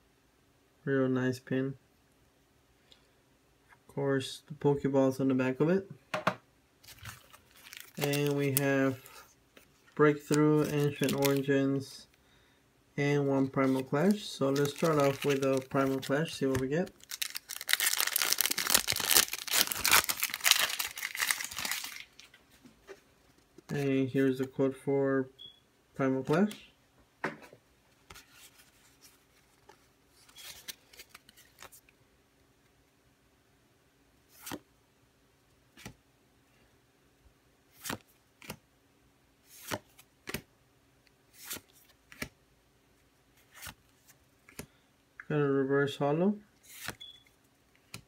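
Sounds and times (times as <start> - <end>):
foil wrapper crinkling and tearing: 6.8 - 8.6, 10.3 - 11.4, 14.5 - 22.4
cards sliding papery swishes: 39.5 - 40.4, 46.6 - 47.0.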